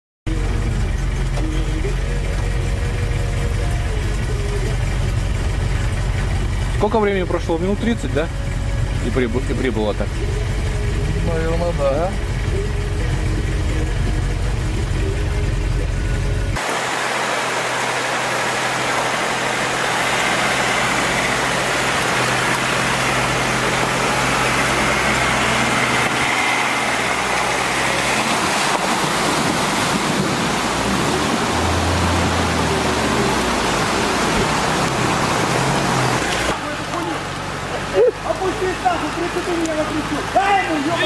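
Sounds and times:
engine hum: 0.3 - 41.0
loud steady rushing noise: 10.4 - 37.7.

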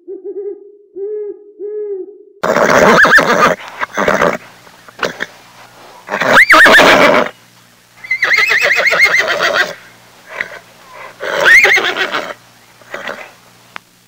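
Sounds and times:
horse whinnying: 2.4 - 4.4, 5.0 - 5.3, 6.1 - 7.3, 8.0 - 13.3.

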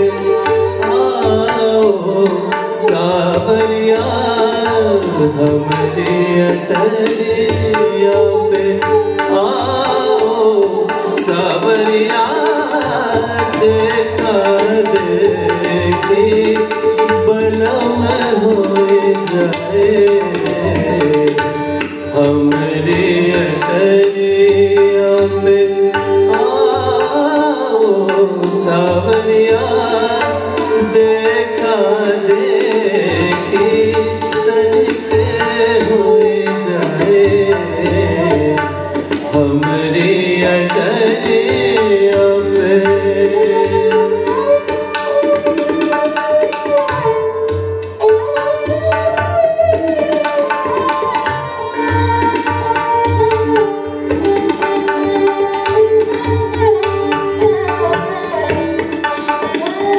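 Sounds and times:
tabla rhythm: 0.0 - 59.9.

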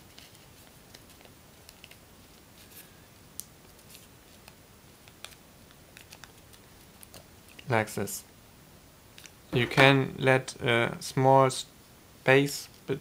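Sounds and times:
paper crinkling and creasing: 0.1 - 3.0, 3.7 - 7.6.

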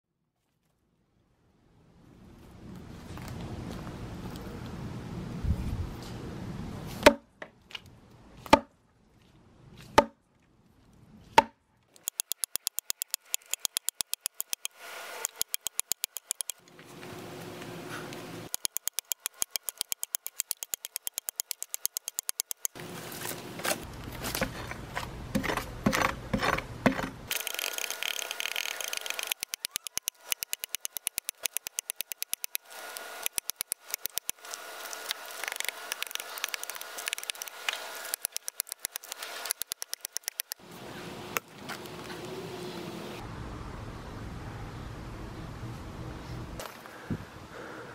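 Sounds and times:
axe chopping log: 7.0 - 7.3, 8.4 - 8.7, 9.9 - 10.2, 11.3 - 11.6.

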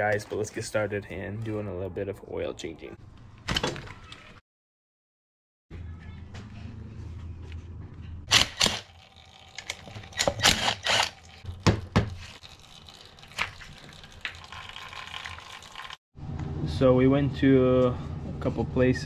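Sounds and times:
cordless drill spinning: 10.2 - 11.2.

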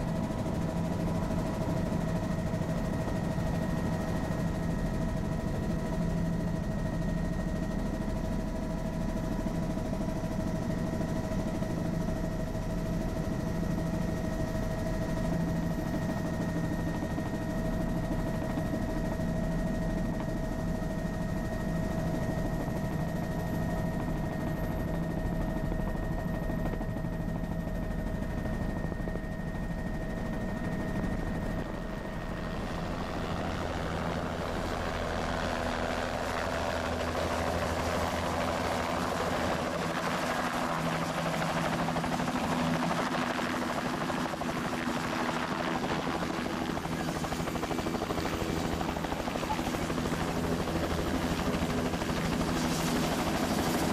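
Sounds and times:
helicopter rotor drone: 0.0 - 53.9
helicopter turbine whine: 0.0 - 53.9
helicopter rotor chopping: 30.4 - 53.9.

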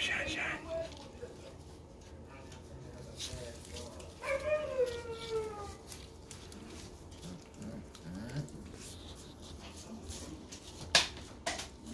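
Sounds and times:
paws rustling in wood shavings: 0.0 - 11.9
puppy grunts: 7.2 - 9.0.

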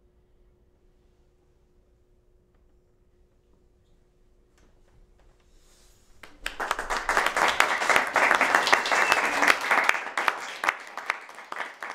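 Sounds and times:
audience applauding: 6.2 - 11.9.

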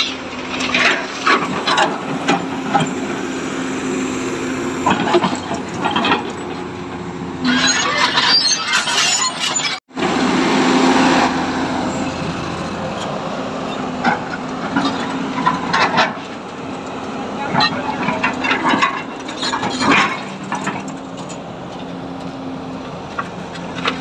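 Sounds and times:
excavator diesel engine running: 0.0 - 24.0
rattling clatter: 17.5 - 21.8.

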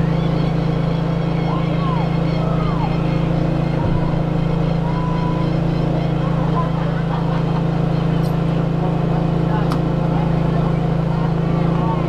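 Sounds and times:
faint distant shouts: 0.0 - 7.0
low motor hum: 0.0 - 12.0.

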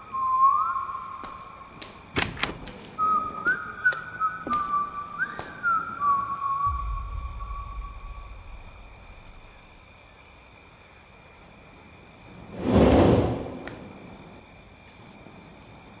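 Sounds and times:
held whistled note: 0.0 - 1.8, 3.0 - 9.8
quiet steady hiss: 0.0 - 12.6
swelling whoosh: 6.7 - 9.8, 12.5 - 14.0.

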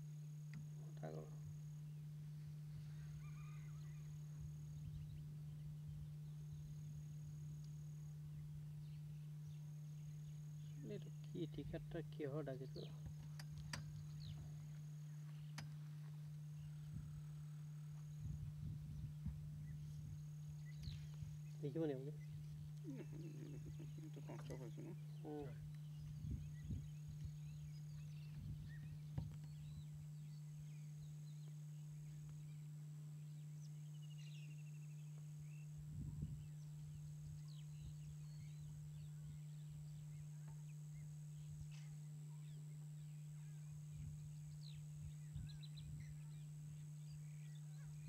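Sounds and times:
steady low hum: 0.0 - 48.0
bird chirps: 2.8 - 7.0, 8.3 - 48.0
bird trill: 2.9 - 5.6
dull low thumps: 17.9 - 21.4.

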